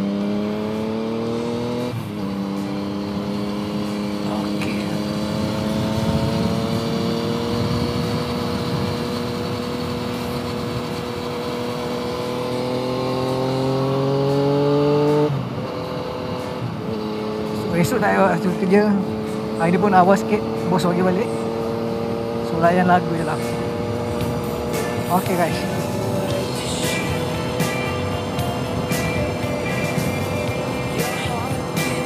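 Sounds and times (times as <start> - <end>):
motorcycle engine accelerating: 0.0 - 32.0
wind noise: 4.7 - 11.6.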